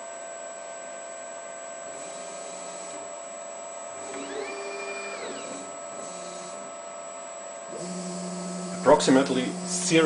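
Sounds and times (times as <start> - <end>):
electrical hum: 0.6 - 10.0
motor whine: 1.8 - 3.2, 3.8 - 10.0.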